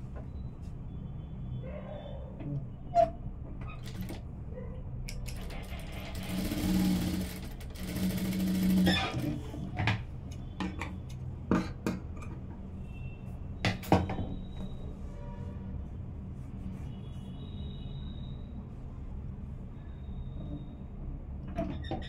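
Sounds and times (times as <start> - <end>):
sewing machine stitching: 3.8 - 4.2, 5.2 - 9.8.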